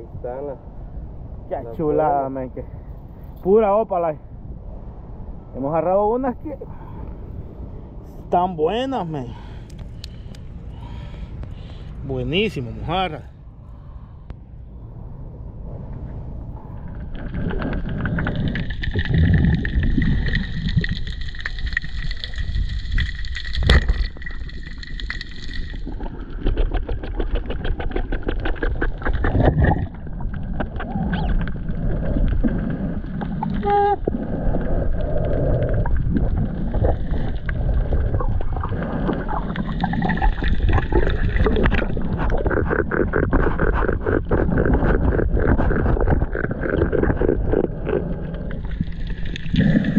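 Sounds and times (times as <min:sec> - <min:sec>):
small underwater clicks: 0:09.6 - 0:10.5, 0:16.8 - 0:49.9
underwater rush and gurgle: 0:15.4 - 0:49.9.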